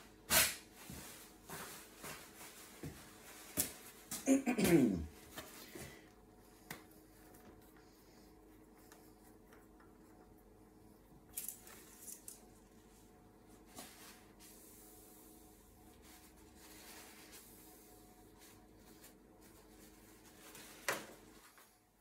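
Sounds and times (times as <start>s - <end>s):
faint steady hum: 0.0s - 22.0s
paper towel rustling: 0.3s - 4.2s, 12.7s - 21.9s.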